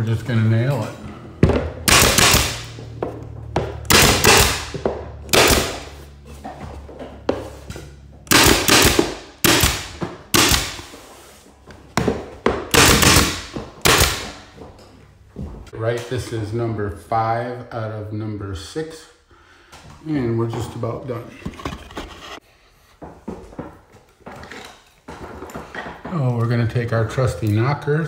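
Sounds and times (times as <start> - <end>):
nail gun firing with hiss: 1.9 - 2.8, 3.9 - 6.0, 8.3 - 11.0, 12.7 - 14.4.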